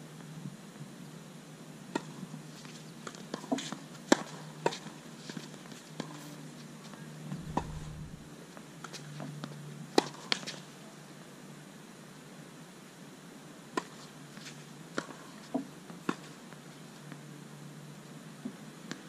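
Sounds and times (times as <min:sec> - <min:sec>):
low hum: 0:07.2 - 0:08.3.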